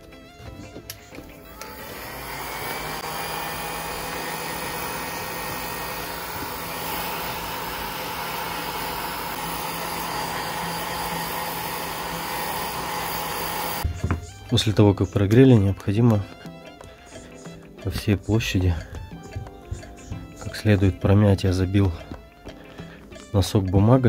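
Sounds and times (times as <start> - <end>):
heat gun blowing: 1.4 - 13.9.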